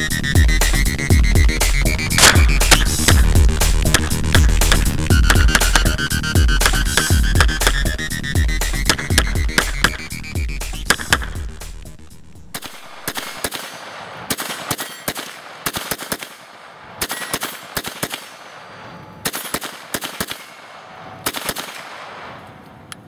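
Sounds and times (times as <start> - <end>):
pistol shots: 2.1 - 7.9, 8.8 - 10.1, 10.8 - 11.4, 12.5 - 22.4.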